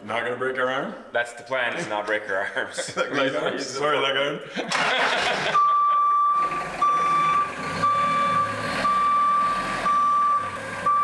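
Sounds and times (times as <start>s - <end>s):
forklift engine running: 4.8s - 11.0s
backup alarm beeping: 5.6s - 11.0s.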